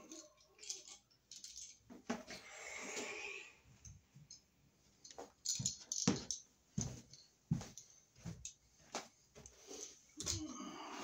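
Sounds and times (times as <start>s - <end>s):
hand tools clicking and knocking: 0.0s - 2.3s.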